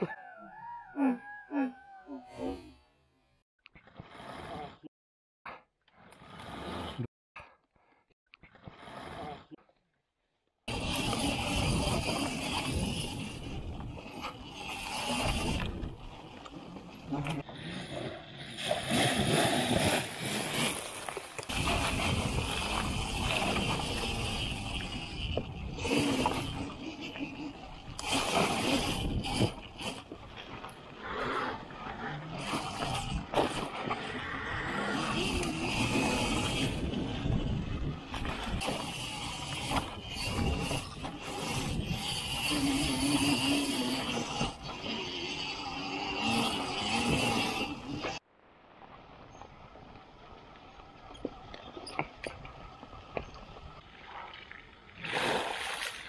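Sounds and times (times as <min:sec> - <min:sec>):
tyre chain and wind noise: 0:10.7 - 0:17.2, 0:19.2 - 0:31.0, 0:31.8 - 0:48.2
electric dirt bike riding: 0:10.7 - 0:48.3
water splashing and churning: 0:10.7 - 0:56.0.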